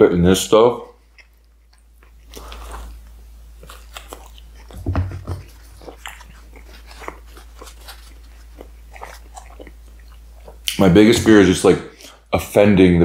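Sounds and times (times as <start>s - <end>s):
wet chewing clicks and smacks: 0.8s - 10.9s.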